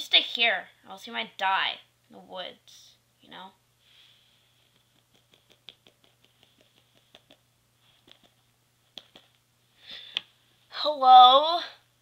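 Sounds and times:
plastic figure tapping on carpet: 4.6 - 7.4, 8.0 - 9.4.

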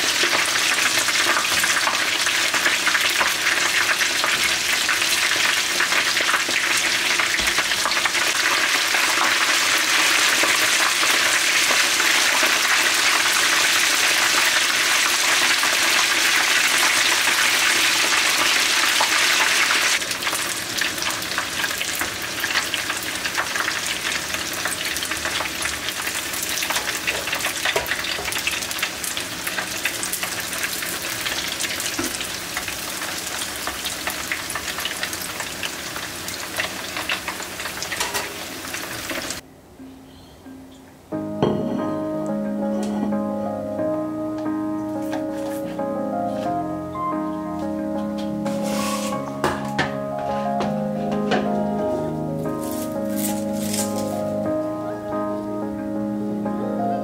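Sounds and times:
fish deep-frying in oil: 0.0 - 39.4.

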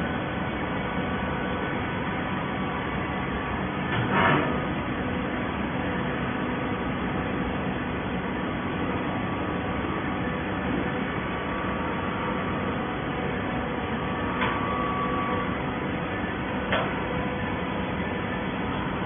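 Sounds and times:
hydraulic power unit humming: 0.0 - 19.0
brief machine whine: 13.3 - 16.3.

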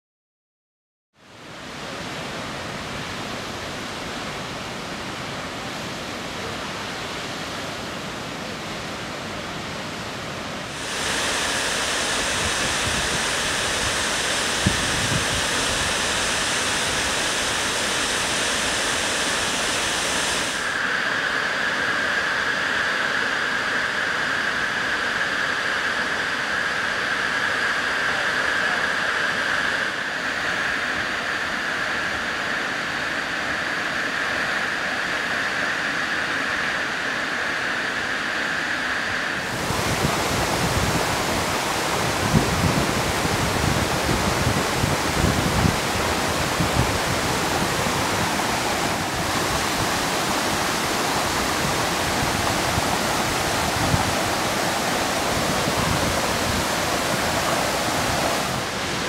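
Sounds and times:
waterfall rushing: 1.9 - 21.2, 39.3 - 59.0.

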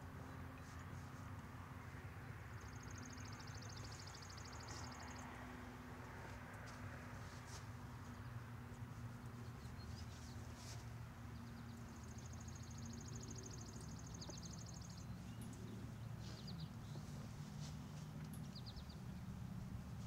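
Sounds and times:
birds chirping: 2.2 - 5.5, 9.0 - 19.6.

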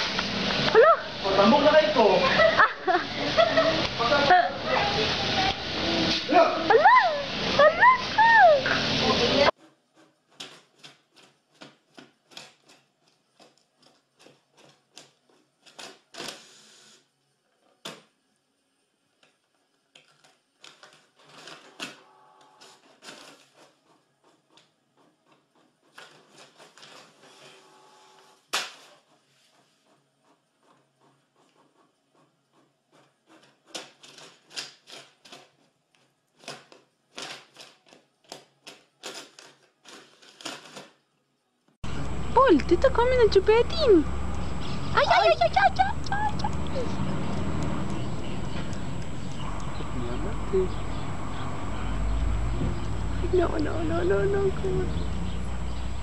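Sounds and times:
cat scratching at printer paper: 9.5 - 16.9, 20.0 - 27.7, 28.5 - 41.0
printer whine: 27.2 - 28.4, 41.9 - 54.2.

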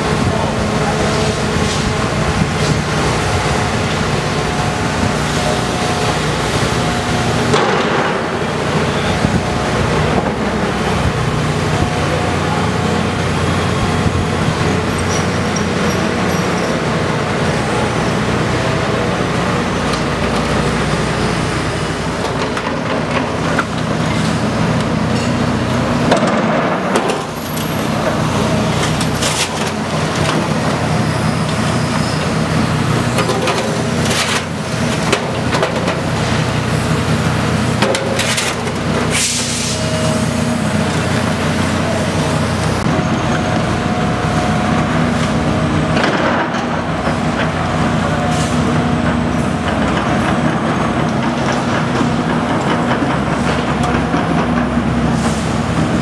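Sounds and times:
hydraulic whine: 0.0 - 50.6
diesel excavators running: 0.0 - 56.0
sharp knocks and clanks: 7.5 - 8.5, 37.8 - 38.8.

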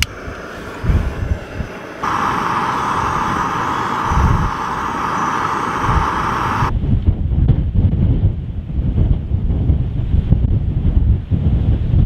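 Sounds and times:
wind buffeting microphone: 0.0 - 12.0
gas stove hissing: 2.0 - 6.7.

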